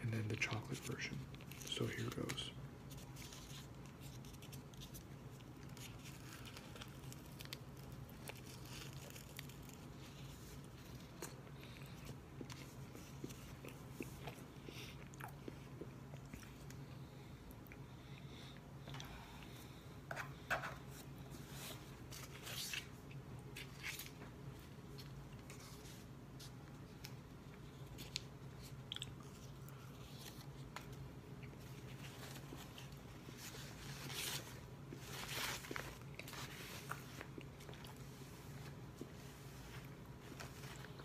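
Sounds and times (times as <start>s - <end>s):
steady low hum: 0.0s - 41.0s
person chewing: 10.9s - 17.8s, 27.0s - 30.5s.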